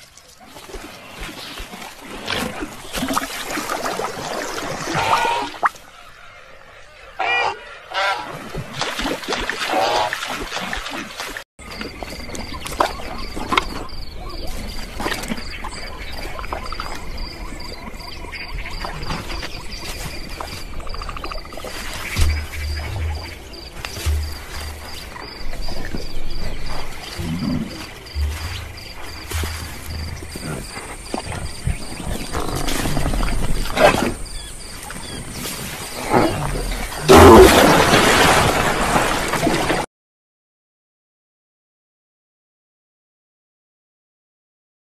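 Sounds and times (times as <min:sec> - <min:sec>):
insects chirping: 0:11.6 - 0:37.3.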